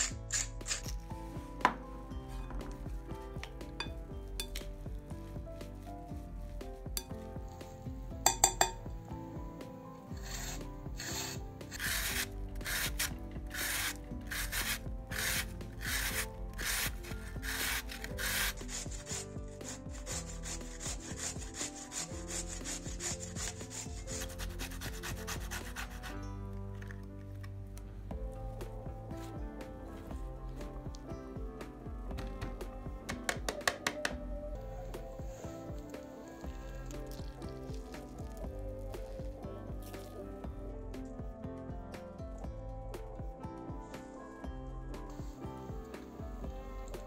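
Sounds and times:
food grated on metal grater: 0:10.2 - 0:26.2.

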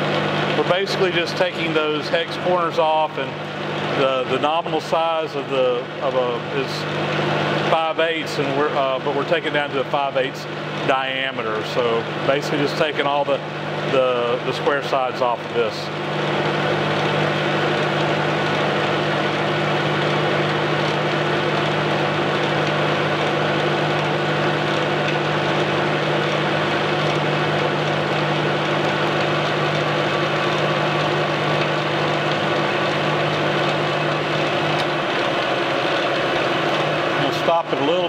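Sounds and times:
lathe cutting steel: 0:11.8 - 0:38.0.

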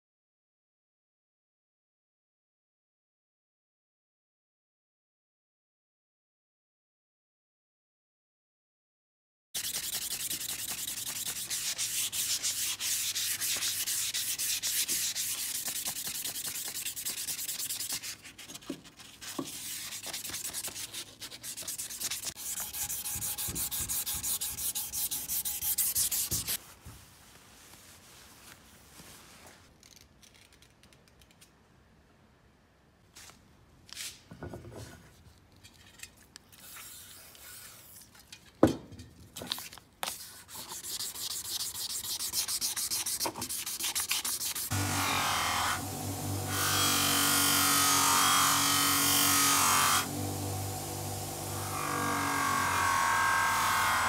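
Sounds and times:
sanding: 0:09.6 - 0:26.6, 0:40.1 - 0:54.0.

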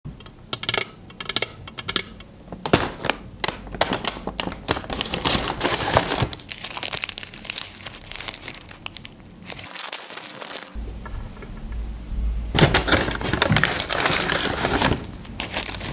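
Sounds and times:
paper bag crinkling: 0:02.6 - 0:10.8, 0:12.6 - 0:15.9.

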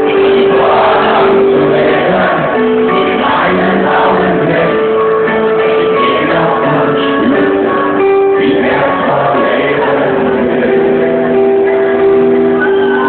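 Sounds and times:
live band music: 0:00.0 - 0:13.0.

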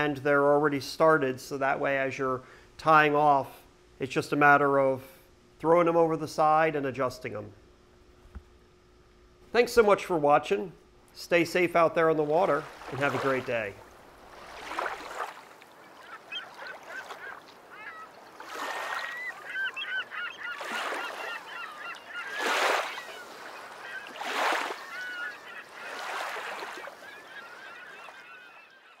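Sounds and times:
birds calling: 0:11.4 - 0:29.0.

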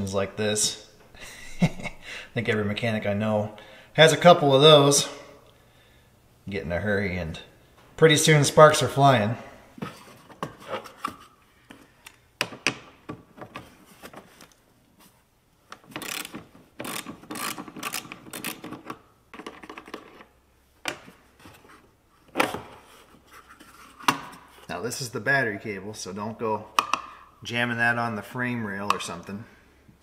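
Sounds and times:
socket ratchet clicking: 0:16.0 - 0:19.0.

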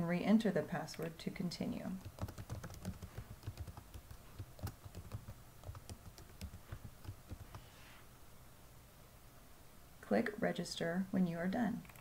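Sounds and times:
faint keyboard typing: 0:01.9 - 0:07.7, 0:11.8 - 0:12.0.

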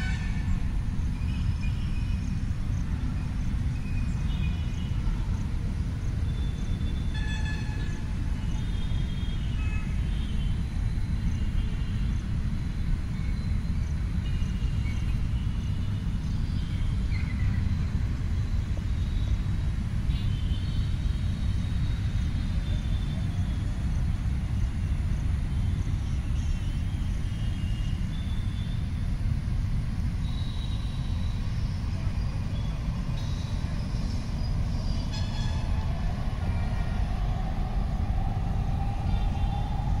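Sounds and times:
wind buffeting microphone: 0:30.9 - 0:40.0.

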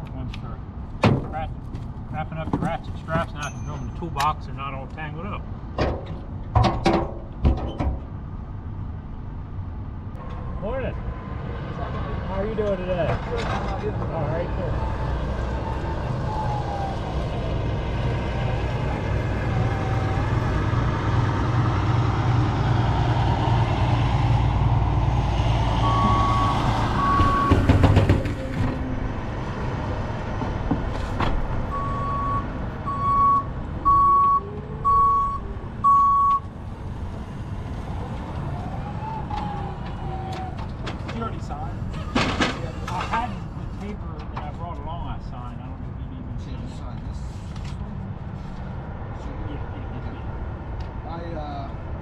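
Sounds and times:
loud clunk: 0:05.8 - 0:08.1
low engine hum: 0:08.0 - 0:52.0
backup alarm beeping: 0:25.8 - 0:27.7, 0:31.7 - 0:36.5.

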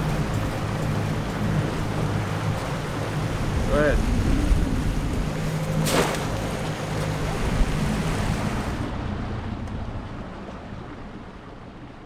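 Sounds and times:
boat motor humming: 0:00.0 - 0:12.0
water noise: 0:00.0 - 0:12.0
wind: 0:00.0 - 0:12.0
trap splashing into water: 0:05.8 - 0:06.4.

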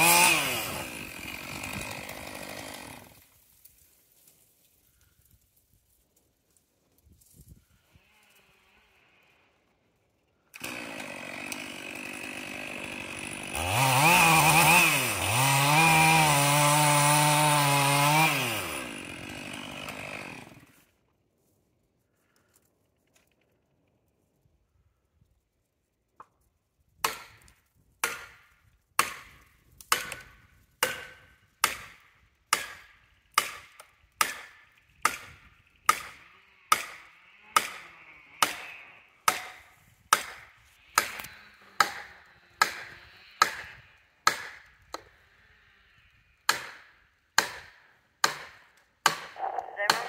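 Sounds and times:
axe chopping tree trunk: 0:27.0 - 0:37.0, 0:37.6 - 0:37.8, 0:39.3 - 0:45.1, 0:46.5 - 0:50.0.

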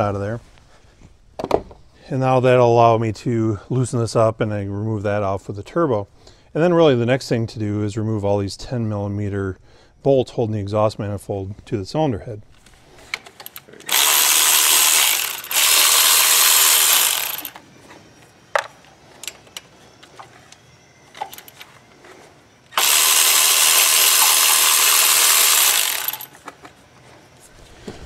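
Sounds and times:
electric ratchet spinning: 0:13.4 - 0:17.6, 0:21.2 - 0:21.6, 0:22.7 - 0:26.4.

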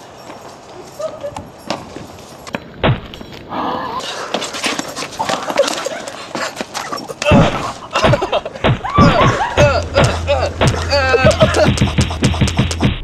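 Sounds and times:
people yelling and grunting: 0:05.0 - 0:11.8.

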